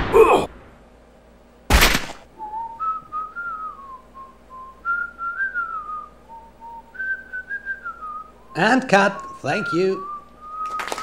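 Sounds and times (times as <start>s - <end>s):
person whistling a slow tune: 2.4s - 8.6s, 9.2s - 11.0s.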